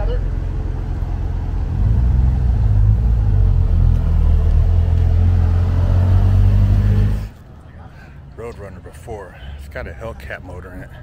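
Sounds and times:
car engine driving slowly past: 0.0s - 7.7s.

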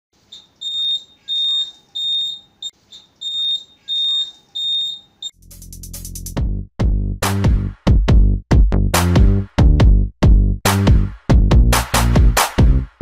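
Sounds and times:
turn-indicator beeping: 0.4s - 5.4s
electronic music with heavy beats: 5.4s - 13.0s.

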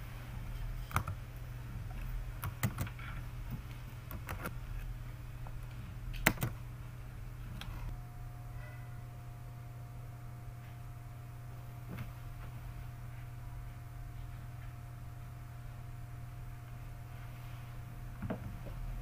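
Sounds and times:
steady low hum: 0.0s - 19.0s
computer keyboard and mouse clicks: 0.9s - 1.2s, 2.4s - 3.2s, 4.1s - 4.5s, 6.2s - 6.6s.

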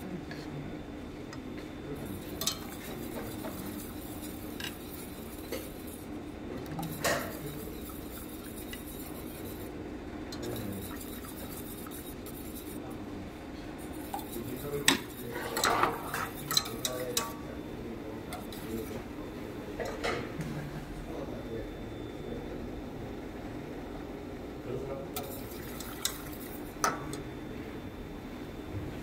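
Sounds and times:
whisk stirring in saucepan: 1.6s - 13.0s, 13.6s - 20.2s, 25.2s - 27.2s
metal clinking against pot: 2.2s - 5.7s, 14.1s - 17.4s.

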